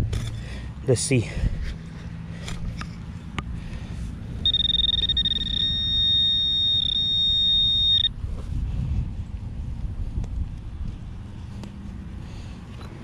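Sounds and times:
pinpointer beeping: 4.4s - 8.1s.

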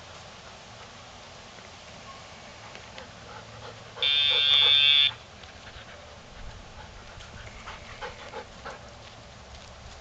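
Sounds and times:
faint footsteps on gravel: 5.1s - 10.0s.

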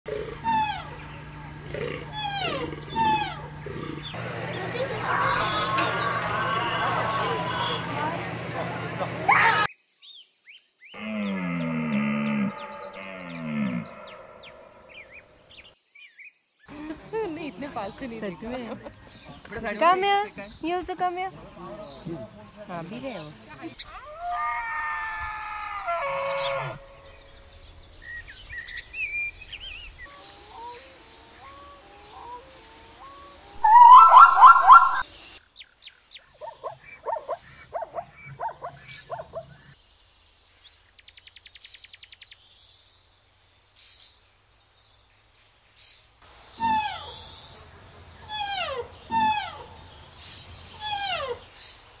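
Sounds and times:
deer and zebra calls: 0.1s - 4.2s, 23.9s - 27.2s, 46.6s - 47.3s, 48.2s - 49.8s, 50.7s - 51.5s
high downward sliding calls: 0.4s - 1.1s, 2.2s - 3.5s, 33.0s - 35.1s, 48.2s - 49.8s, 50.7s - 51.5s.

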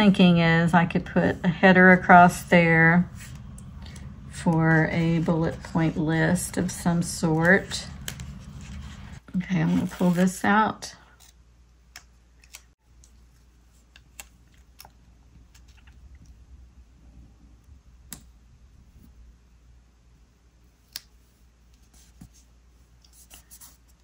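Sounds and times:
paper rustling: 3.2s - 10.5s.

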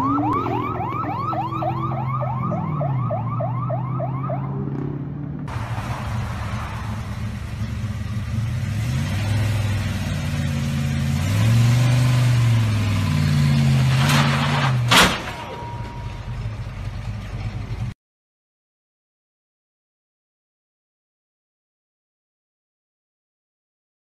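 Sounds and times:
car engine revving: 0.0s - 15.0s
loud bang: 13.9s - 16.0s.

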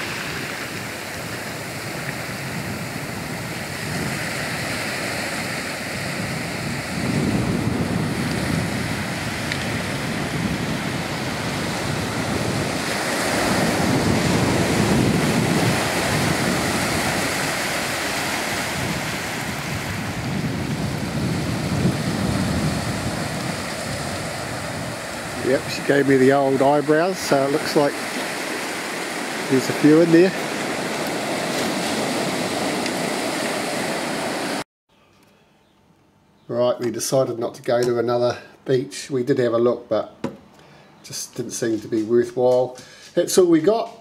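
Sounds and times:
small waves breaking on beach: 0.0s - 34.6s.

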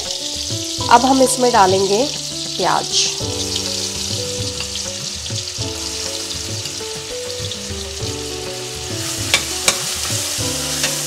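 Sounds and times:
onions sizzling in oil: 0.0s - 11.0s
soft background music: 0.0s - 11.0s
spoon clicking on pan: 9.3s - 9.9s.

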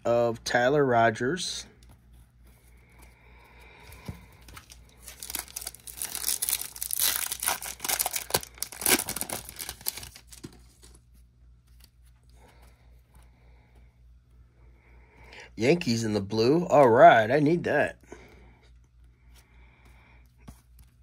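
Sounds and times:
foil wrapper tearing and crinkling: 4.5s - 10.6s.

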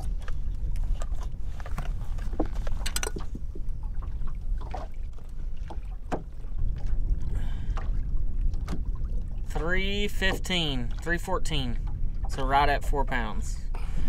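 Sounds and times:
water lapping against hull: 0.0s - 14.0s
wind rumble on microphone: 0.0s - 14.0s
sharp clicks and knocks: 2.3s - 3.4s.

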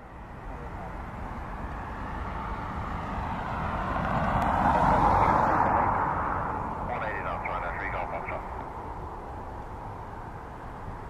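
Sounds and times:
vehicle passing: 0.0s - 11.0s.

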